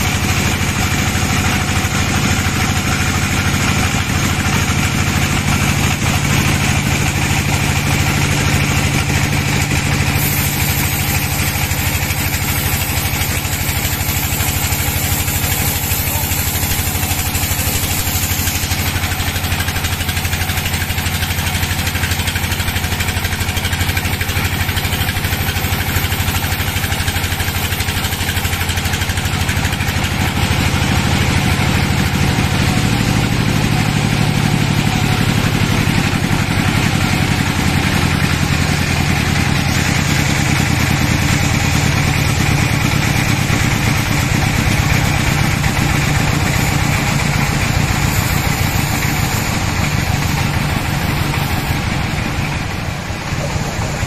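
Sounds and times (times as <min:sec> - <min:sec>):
band sawmill drone: 0:00.0 - 0:54.0
high hiss: 0:09.5 - 0:29.1, 0:44.8 - 0:54.0.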